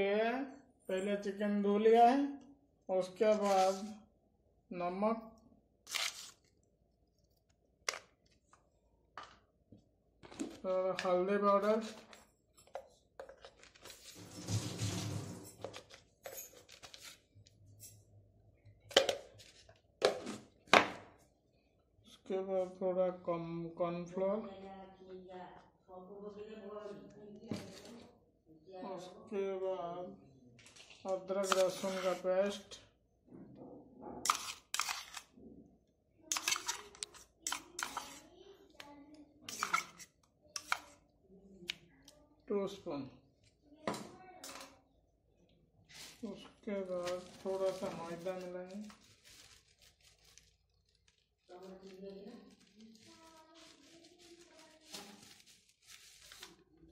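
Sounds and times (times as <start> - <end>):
powder rustling in a bowl: 3.3 - 4.0, 31.3 - 32.7, 34.3 - 35.3, 36.3 - 38.3, 45.9 - 56.8
utensils scraping steel containers: 13.8 - 17.0, 31.4 - 32.3, 34.2 - 35.3, 36.3 - 38.2, 39.5 - 41.0.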